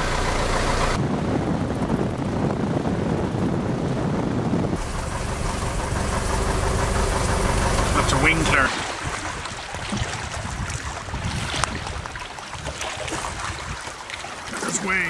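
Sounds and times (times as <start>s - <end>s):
plane engine running: 0.0s - 2.4s, 4.4s - 8.7s
water rushing along float: 0.0s - 15.0s.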